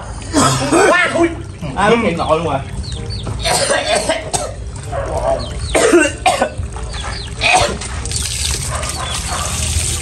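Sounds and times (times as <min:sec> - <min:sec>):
water running from outdoor tap: 0:00.0 - 0:10.0
man coughing: 0:00.3 - 0:01.0, 0:03.5 - 0:04.6, 0:05.8 - 0:06.6.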